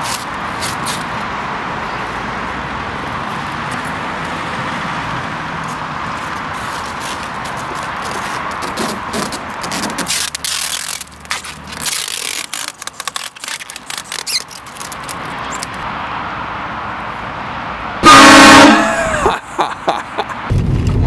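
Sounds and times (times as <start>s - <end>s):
car moving low rumble: 0.0s - 18.0s
train horn blast: 18.0s - 19.1s.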